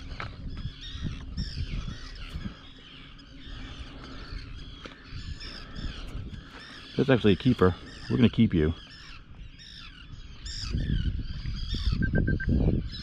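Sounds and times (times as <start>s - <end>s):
many birds calling: 0.0s - 13.0s.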